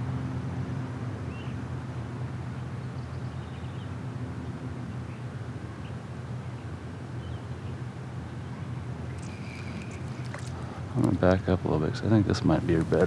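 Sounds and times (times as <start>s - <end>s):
faint bird chirps: 5.0s - 10.5s.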